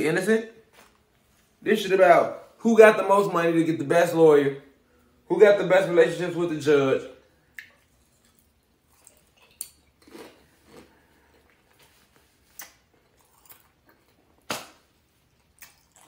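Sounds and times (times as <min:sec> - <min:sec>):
person chewing: 0:07.5 - 0:14.5, 0:15.2 - 0:16.0.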